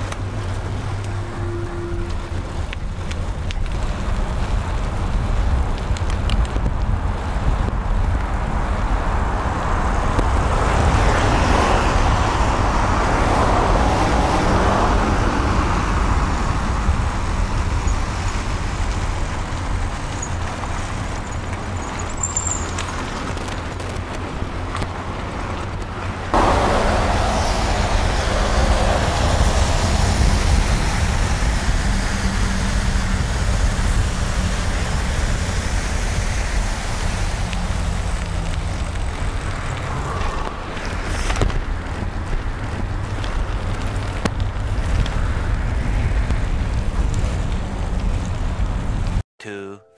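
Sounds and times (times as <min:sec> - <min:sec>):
cars and bus passing: 0:00.0 - 0:49.2
road noise: 0:00.0 - 0:49.3
wind rushing: 0:26.2 - 0:49.2.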